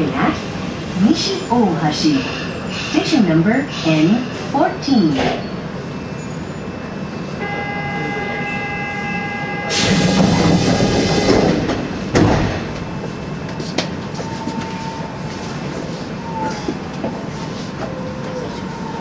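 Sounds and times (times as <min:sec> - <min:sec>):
train doors sliding shut: 0:09.7 - 0:14.9.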